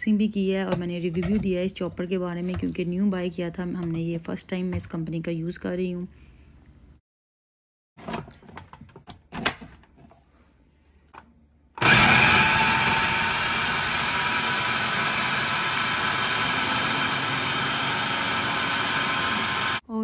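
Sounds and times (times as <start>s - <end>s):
food chopper motor whining: 11.8s - 19.8s.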